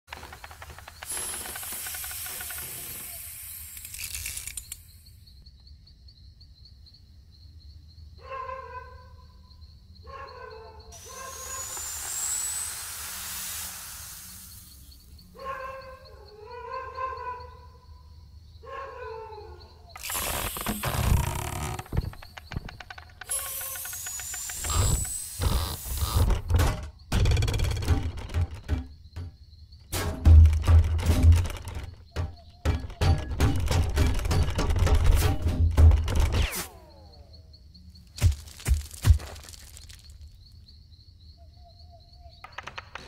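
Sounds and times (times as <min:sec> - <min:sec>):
hissing noise: 0:00.1 - 0:04.8, 0:11.0 - 0:15.1, 0:20.0 - 0:26.5.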